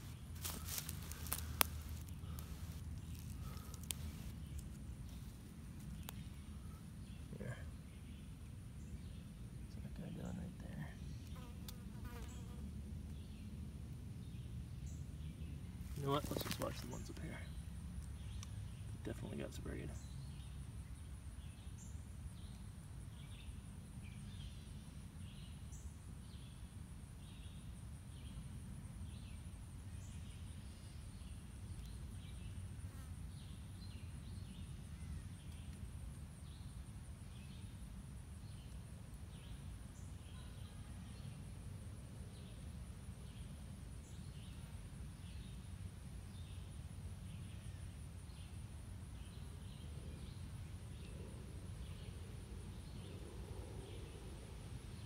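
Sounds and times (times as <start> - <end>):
insect chirps: 0.0 - 13.3, 14.4 - 55.0
insects droning: 0.0 - 13.3, 14.8 - 55.0.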